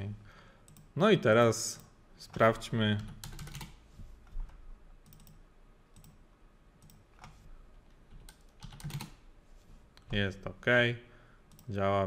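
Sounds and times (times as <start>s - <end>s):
keyboard and mouse clicks: 1.8s - 5.4s, 6.0s - 6.2s, 6.8s - 9.2s.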